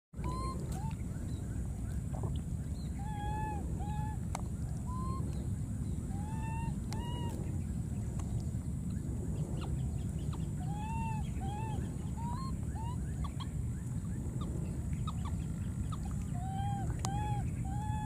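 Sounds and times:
baby monkeys cooing: 0:00.2 - 0:01.0, 0:03.0 - 0:04.3, 0:04.9 - 0:05.3, 0:06.1 - 0:07.4, 0:10.6 - 0:13.5, 0:15.0 - 0:18.0.

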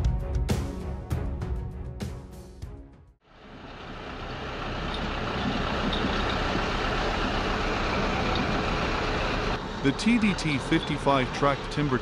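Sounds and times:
heavy vehicle engine running: 0:03.2 - 0:12.0.

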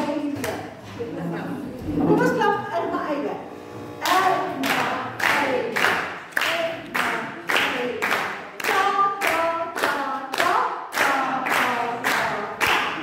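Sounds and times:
hand claps: 0:04.0 - 0:13.0.

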